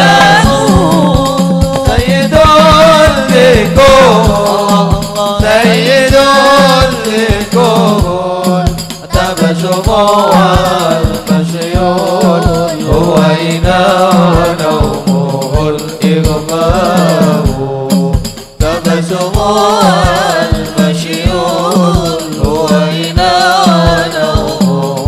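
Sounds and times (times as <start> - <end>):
deep bass drum beating: 0.0 - 4.4
melismatic sung melody: 0.0 - 17.9, 18.6 - 25.0
frame drums: 0.0 - 25.0.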